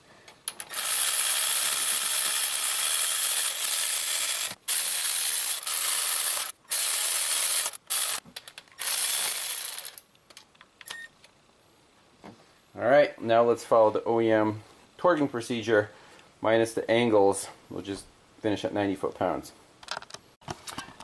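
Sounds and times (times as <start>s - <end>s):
electric ratchet spinning: 0.5s - 8.2s, 8.8s - 10.0s.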